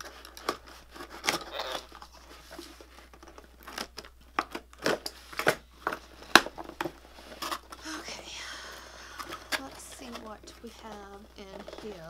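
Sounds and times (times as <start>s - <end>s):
packing tape tearing: 0.0s - 7.9s
cardboard crinkling and scraping: 0.0s - 12.0s.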